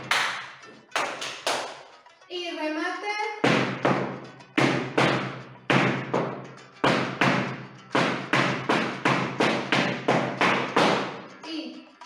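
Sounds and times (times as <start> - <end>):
dance shoes stamping on floor: 3.4 - 11.3.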